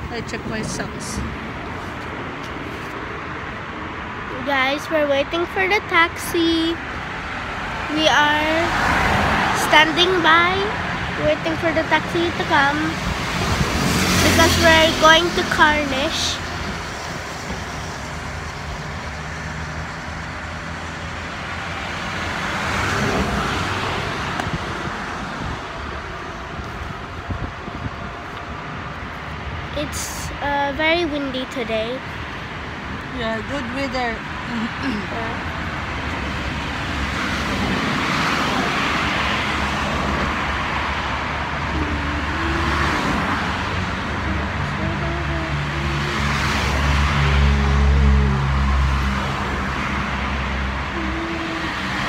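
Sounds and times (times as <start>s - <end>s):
cars going by: 0.0s - 52.0s
vehicle passing close: 0.0s - 52.0s
wind rumbling on microphone: 6.7s - 31.0s.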